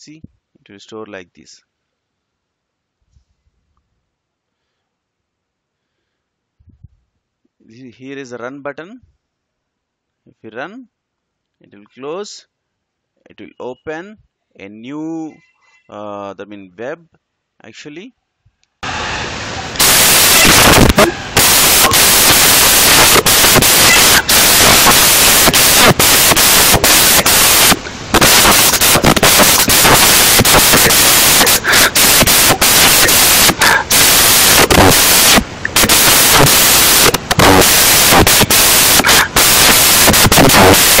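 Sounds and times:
harsh static noise: 0.0s - 0.4s, 18.8s - 41.0s.

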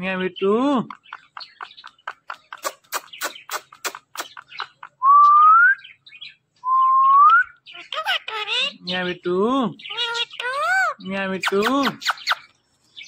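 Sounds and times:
parakeet clicking: 0.8s - 5.0s.

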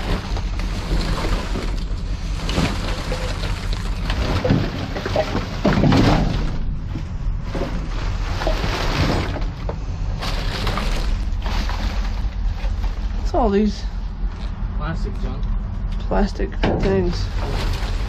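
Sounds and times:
steady low rumble: 0.0s - 18.0s
plastic packaging crinkling: 8.0s - 13.1s.

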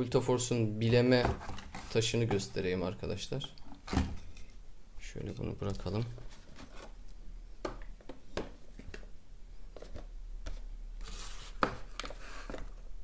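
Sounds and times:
rustling scrape: 11.0s - 12.7s.

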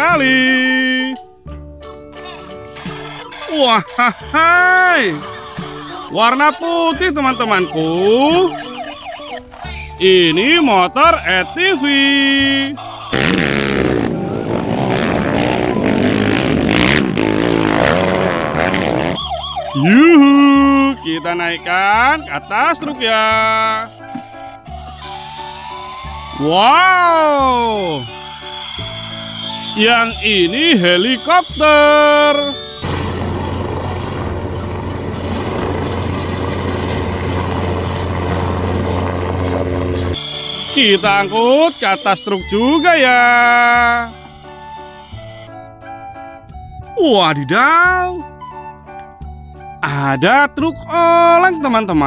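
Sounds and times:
quad bike engines revving: 12.3s - 19.9s
helicopter in flight: 12.8s - 19.8s, 32.5s - 42.6s.

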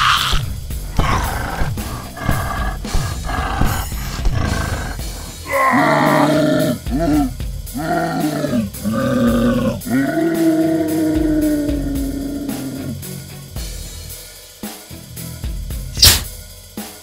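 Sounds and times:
monster roaring: 0.0s - 13.0s
music with a steady beat: 0.3s - 17.0s.

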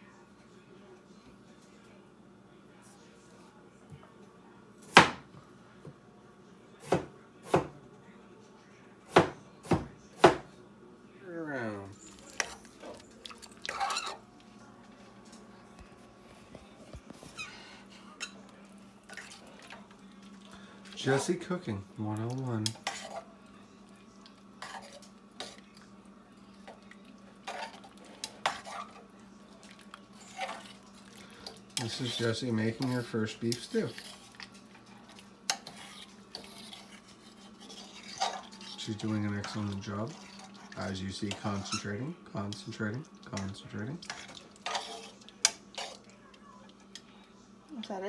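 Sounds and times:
spoon scraping metal pot: 13.6s - 14.2s, 22.6s - 23.2s, 35.5s - 41.9s, 44.0s - 46.0s.

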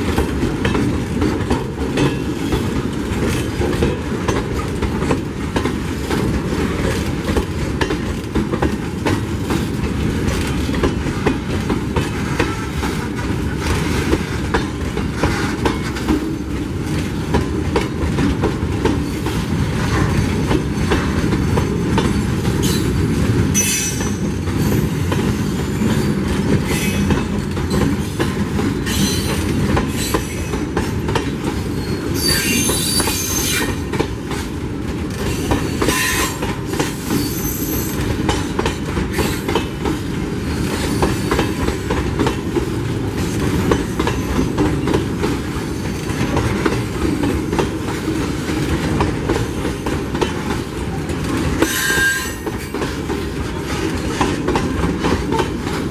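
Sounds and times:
train wheels rumbling on rails: 0.0s - 55.9s
wheel screeches: 31.8s - 33.8s.

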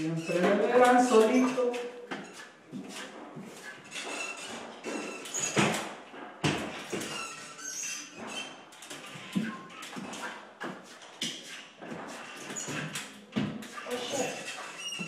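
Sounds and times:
squeaks scuffs and knocks: 0.0s - 15.0s.

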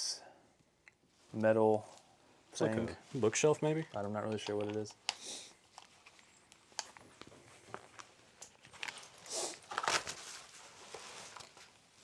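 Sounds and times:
clothing rustling: 5.6s - 12.0s.

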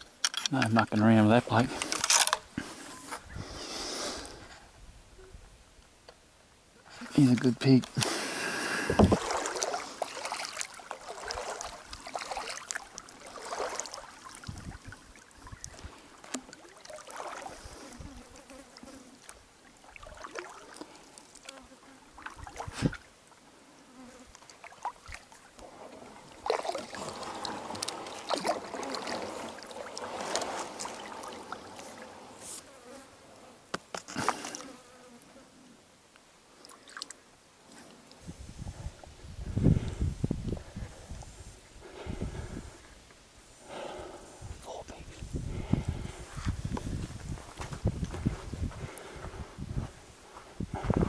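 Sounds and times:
paddle swishing through water: 8.0s - 23.5s, 24.4s - 32.8s
insects buzzing: 15.0s - 35.7s.

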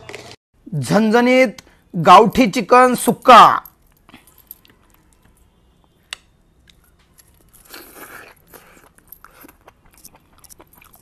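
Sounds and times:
man chewing food: 6.6s - 11.0s.

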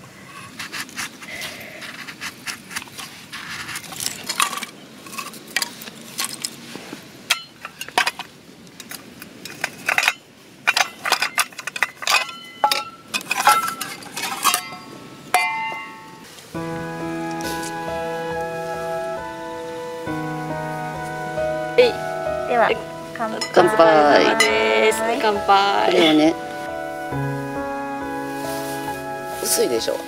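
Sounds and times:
knife scraping wood: 0.3s - 4.5s
metal cookware clinking: 7.3s - 16.2s.

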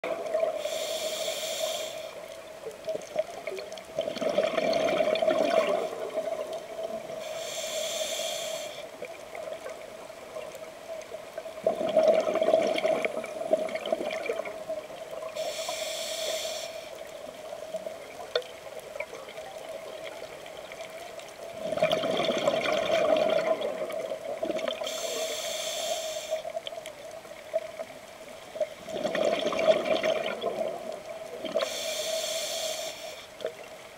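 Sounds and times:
hissing inhale through regulator: 0.4s - 2.4s, 7.1s - 9.1s, 15.2s - 17.5s, 24.8s - 26.6s, 31.5s - 33.5s
bubbling rush of exhaled bubbles: 4.0s - 6.6s, 11.6s - 14.7s, 21.6s - 24.8s, 28.8s - 31.6s.

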